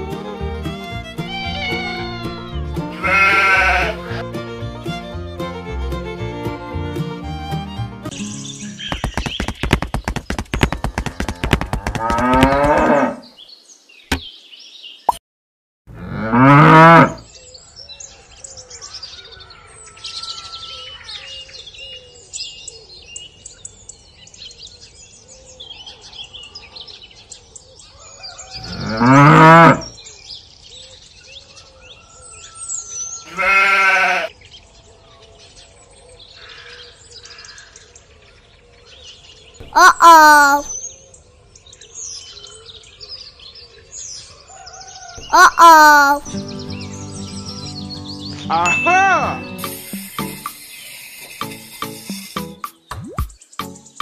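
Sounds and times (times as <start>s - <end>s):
cow mooing: 3.0s - 4.2s, 12.0s - 13.2s, 15.9s - 17.2s, 28.6s - 29.9s.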